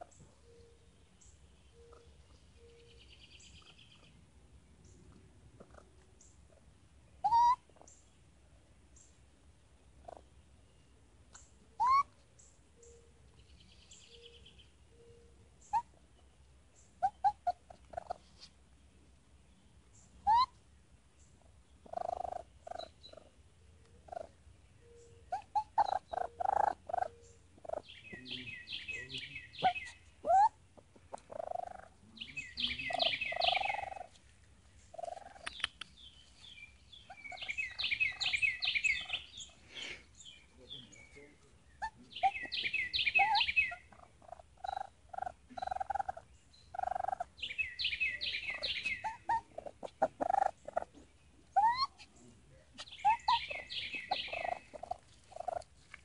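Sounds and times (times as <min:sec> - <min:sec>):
raccoon whimpers: 0:05.6 - 0:06.0, 0:07.2 - 0:07.8, 0:11.7 - 0:12.2, 0:15.7 - 0:16.0, 0:17.0 - 0:18.3, 0:20.2 - 0:20.6, 0:21.8 - 0:23.4, 0:24.0 - 0:24.4, 0:25.3 - 0:27.9, 0:29.6 - 0:32.0, 0:32.8 - 0:34.2, 0:34.9 - 0:35.7, 0:41.8 - 0:47.4, 0:48.2 - 0:52.1, 0:52.8 - 0:55.7
baby raccoon squeaking: 0:07.2 - 0:07.9, 0:10.0 - 0:10.3, 0:11.3 - 0:12.2, 0:15.6 - 0:16.0, 0:17.0 - 0:18.5, 0:20.2 - 0:20.6, 0:21.8 - 0:23.4, 0:24.0 - 0:24.4, 0:25.2 - 0:28.0, 0:28.7 - 0:34.2, 0:34.9 - 0:35.9, 0:37.0 - 0:40.0, 0:41.7 - 0:52.2, 0:52.8 - 0:55.8.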